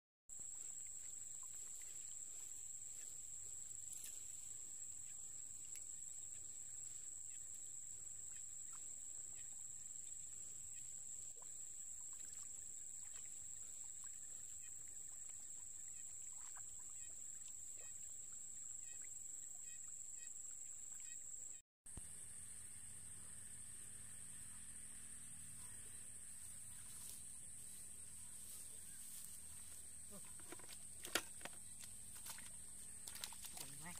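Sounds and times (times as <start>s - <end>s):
fish splashing in water: 30.6s - 33.9s.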